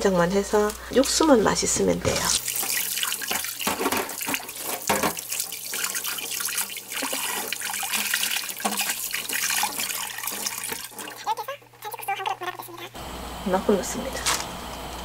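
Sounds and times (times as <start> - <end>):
water splashing over herbs: 1.0 - 11.2
tap running into metal sink: 2.1 - 5.5.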